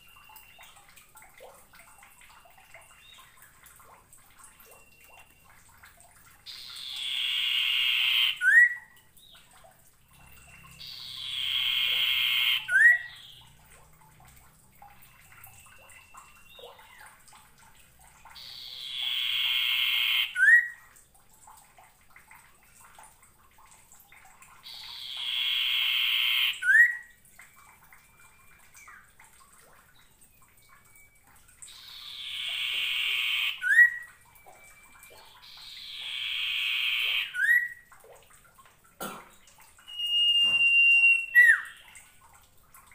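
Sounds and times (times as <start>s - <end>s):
faint thin whistles: 39.8s - 41.8s.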